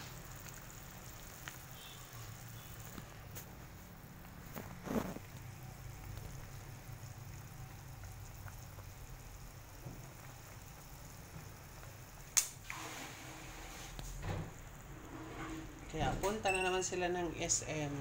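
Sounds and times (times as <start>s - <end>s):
pot bubbling at a boil: 0.0s - 18.0s.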